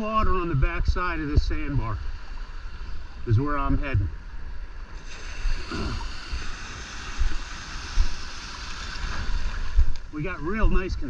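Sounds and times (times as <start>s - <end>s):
wind rumbling on microphone: 0.0s - 11.0s
surf washing around legs: 4.9s - 10.8s.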